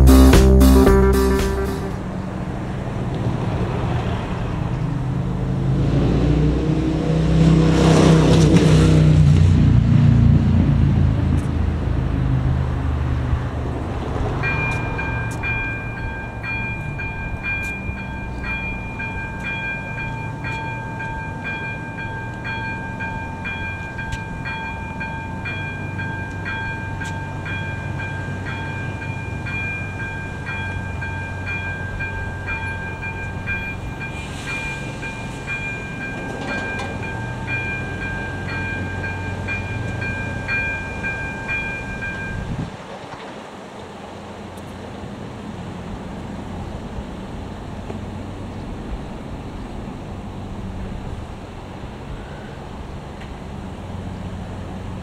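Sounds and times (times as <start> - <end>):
level crossing warning bell: 14.3 - 42.7.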